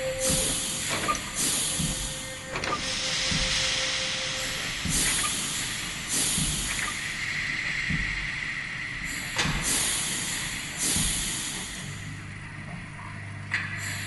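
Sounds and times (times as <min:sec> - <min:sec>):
hissing steam bursts: 0:00.0 - 0:06.6.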